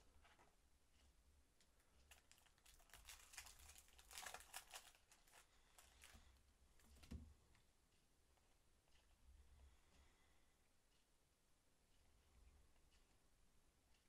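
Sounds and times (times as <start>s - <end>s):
card packet crinkling: 2.1s - 6.2s.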